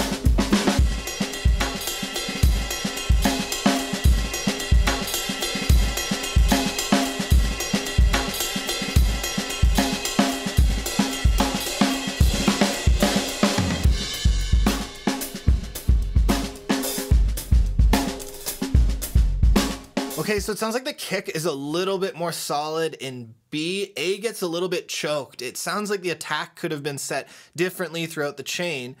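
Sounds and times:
acoustic drum kit groove: 0.0 - 21.5.

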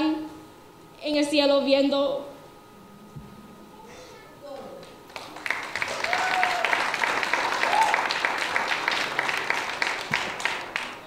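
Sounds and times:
crowd clapping: 4.8 - 11.0.

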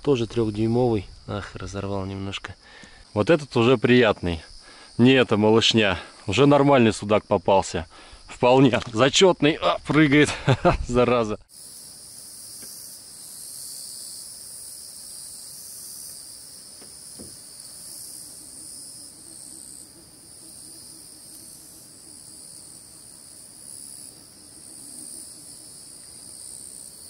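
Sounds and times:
insects shrilling: 11.5 - 27.0.

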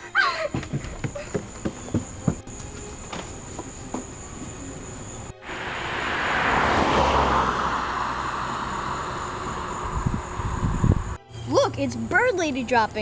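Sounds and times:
car passing: 3.4 - 11.2.

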